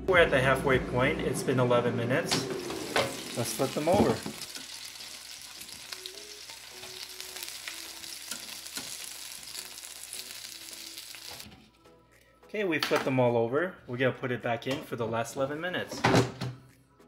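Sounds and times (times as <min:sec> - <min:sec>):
chicken wings sizzling and crackling: 0:02.5 - 0:11.5.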